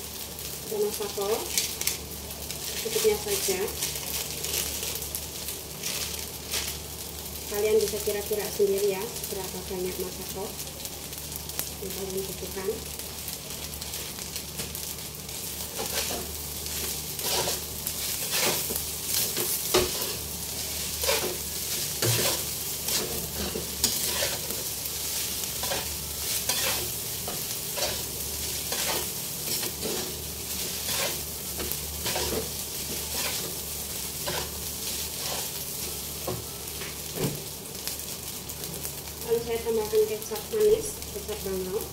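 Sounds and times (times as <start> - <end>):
rice sizzling in a wok: 0.0 - 41.9
metal spatula scraping a wok: 15.7 - 33.6, 34.2 - 35.6.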